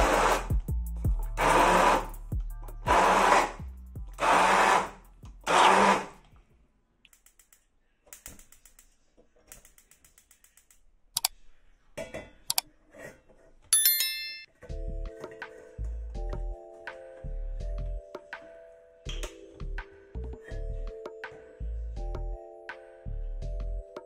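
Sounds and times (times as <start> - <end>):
stick blender running: 0.0 - 0.7, 1.3 - 2.2, 2.8 - 6.2.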